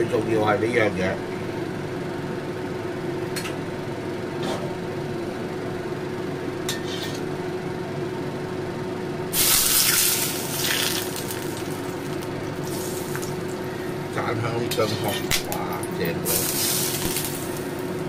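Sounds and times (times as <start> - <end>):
steady hum: 0.0 - 18.0
hot oil sizzling: 9.3 - 14.1, 16.2 - 18.0.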